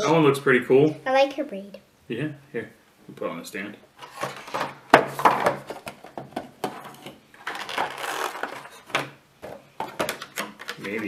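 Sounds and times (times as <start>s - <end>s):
plastic figure clicks and rustling: 9.9s - 11.0s.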